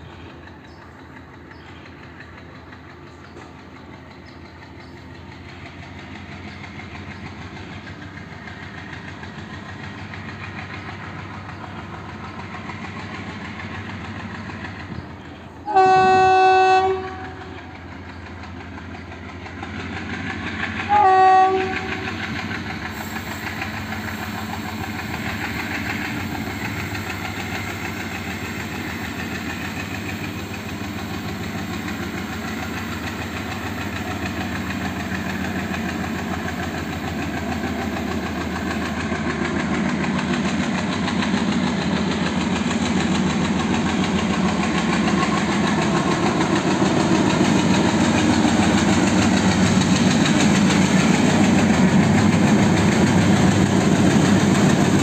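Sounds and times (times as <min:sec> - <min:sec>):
locomotive rumble: 0:00.0 - 0:55.0
locomotive horn: 0:15.6 - 0:17.5, 0:20.9 - 0:22.0.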